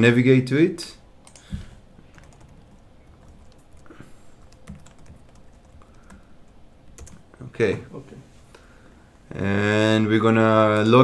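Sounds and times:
keyboard typing: 1.2s - 7.4s.

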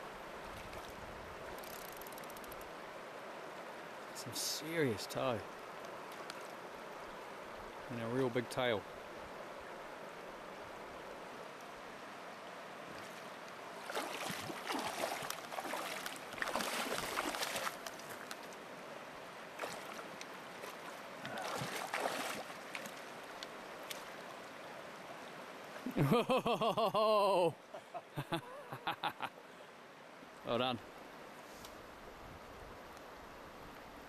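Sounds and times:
river running over stones: 0.0s - 34.0s
fish splashing in water: 13.8s - 17.9s, 20.6s - 23.0s.

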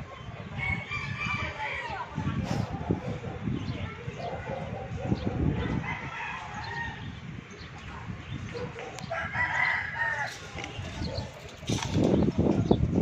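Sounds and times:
rooster crowing: 9.1s - 10.4s.

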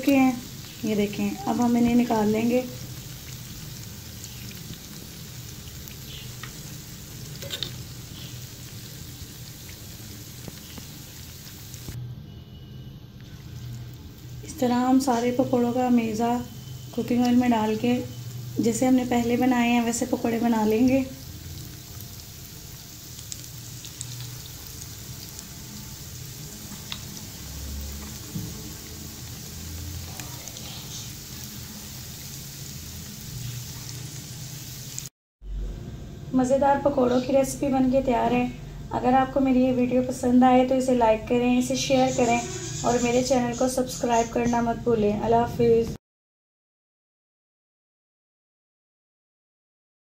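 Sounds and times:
food sizzling in hot oil: 0.0s - 12.0s, 13.2s - 35.1s, 39.0s - 44.6s
small pops and crackles of oil: 5.9s - 6.7s, 7.3s - 8.2s, 10.4s - 11.0s, 26.7s - 27.1s.

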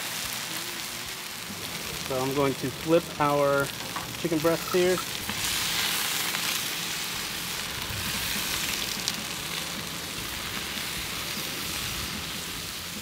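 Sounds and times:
chicken sizzling on a griddle: 0.0s - 13.0s
metal tongs turning food: 3.7s - 6.5s.

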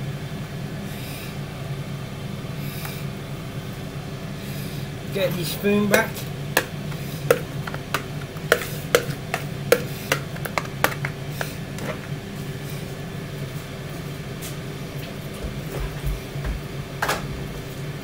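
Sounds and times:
air fryer fan humming: 0.0s - 18.0s
spoon scraping plastic bowl: 6.0s - 12.1s.

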